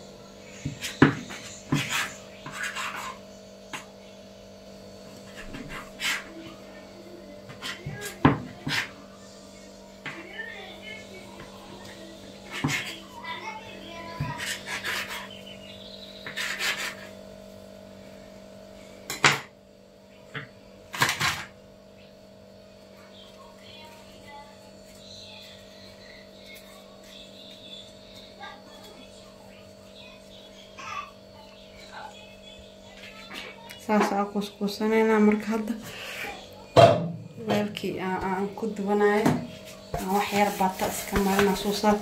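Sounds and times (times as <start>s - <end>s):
steady low hum: 0.0s - 42.0s
knife cutting dough: 0.6s - 3.9s, 5.2s - 6.3s, 7.5s - 9.0s, 12.4s - 13.0s, 14.2s - 15.4s, 16.2s - 17.1s
knife scraping stone countertop: 0.8s - 3.2s, 5.3s - 6.3s, 12.4s - 13.0s, 14.2s - 15.3s, 16.2s - 17.1s
knife slicing dough: 12.4s - 13.0s, 14.2s - 15.4s, 16.2s - 17.1s.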